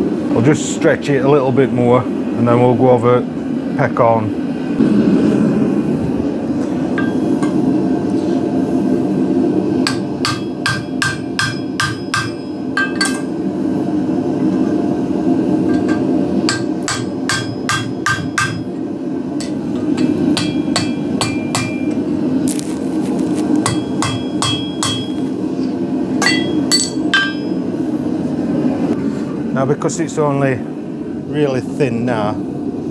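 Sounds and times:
gas burner rushing: 0.0 - 32.9
hammer ringing on steel: 9.9 - 13.2, 15.8 - 18.7, 19.4 - 21.9, 23.7 - 25.2, 26.2 - 27.6.

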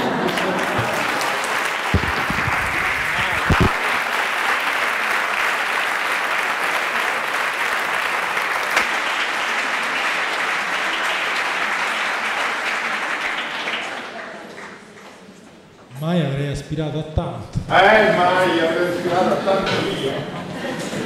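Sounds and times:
audience applause: 0.0 - 14.9.

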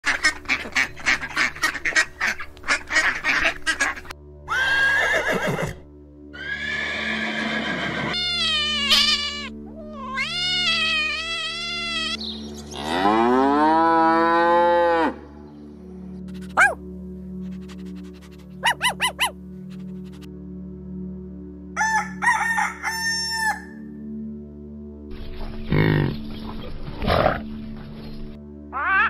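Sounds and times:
cat meowing: 8.1 - 12.2, 28.8 - 29.0
cow mooing: 12.8 - 15.2.

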